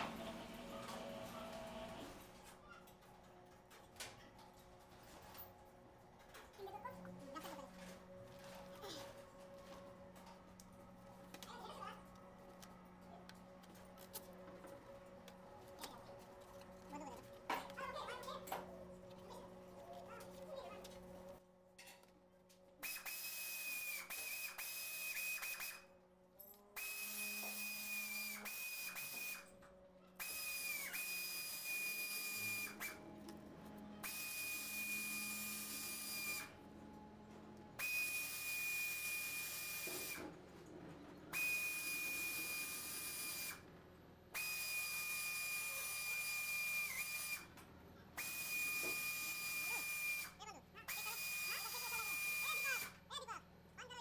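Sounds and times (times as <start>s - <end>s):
high-speed power tool whining: 22.8s - 25.9s, 26.6s - 29.6s, 30.2s - 36.6s, 37.8s - 40.3s, 41.3s - 43.6s, 44.3s - 47.6s, 48.2s - 53.0s.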